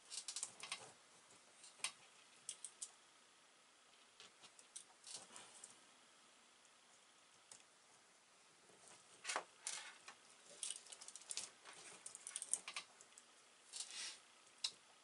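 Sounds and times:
wire connectors clicking and rustling: 0.0s - 3.0s, 3.9s - 5.8s, 8.8s - 15.0s.

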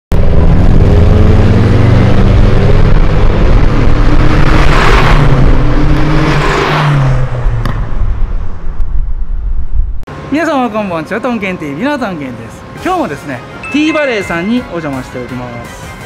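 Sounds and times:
car engines running hard: 0.1s - 13.6s
cars passing by: 0.2s - 16.0s.

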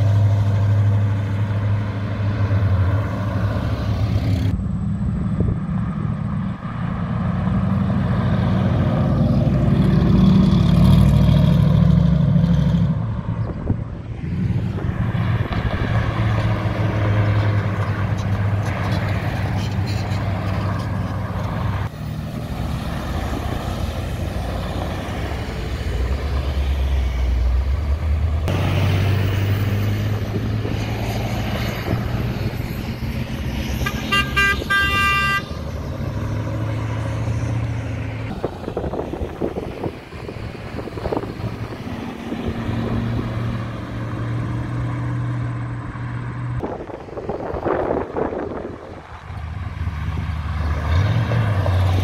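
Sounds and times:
cars driving past: 0.0s - 52.0s
car horn short toots: 33.8s - 35.5s.

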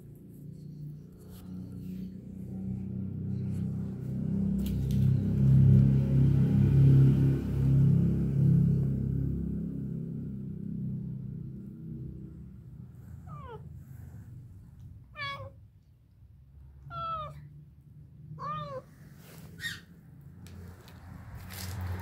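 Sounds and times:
cat meowing: 15.1s - 15.6s, 16.8s - 17.4s, 18.4s - 18.9s.

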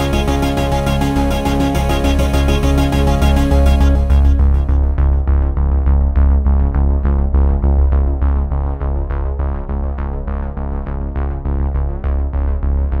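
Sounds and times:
electronic synthesizer music: 0.0s - 5.6s
heavy bass beat: 0.0s - 9.1s.

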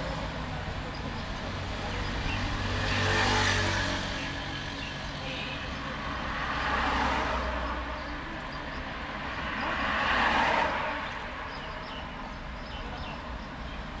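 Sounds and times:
low traffic rumble: 0.0s - 14.0s
vehicles passing: 0.0s - 14.0s.

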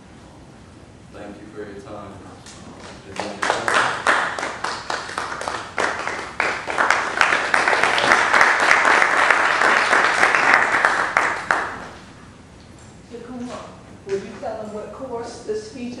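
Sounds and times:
small audience applauding: 2.8s - 12.2s.

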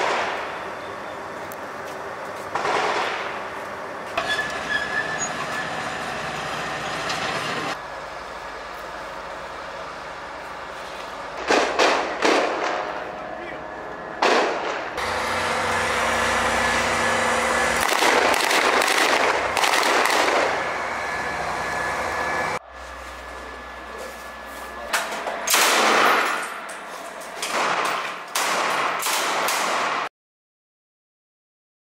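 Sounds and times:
gunshots: 0.0s - 0.5s, 2.5s - 3.4s, 11.4s - 13.0s, 14.2s - 15.0s, 17.8s - 20.6s, 25.4s - 26.6s, 27.4s - 30.1s.

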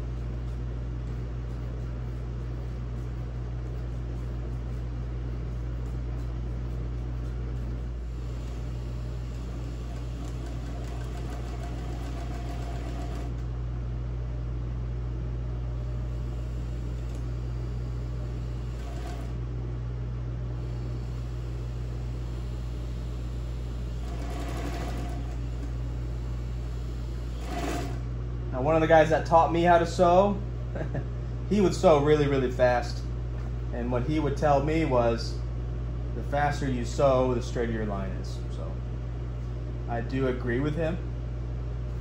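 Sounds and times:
sewing machine stitching: 9.5s - 13.4s, 18.7s - 19.4s, 24.0s - 25.7s, 27.4s - 28.0s.

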